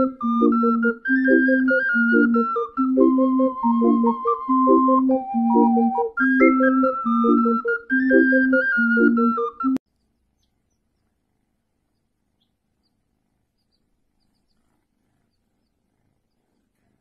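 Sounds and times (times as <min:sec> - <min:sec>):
flute-like background music: 0:00.0 - 0:09.8
baby chicks peeping: 0:11.9 - 0:16.8.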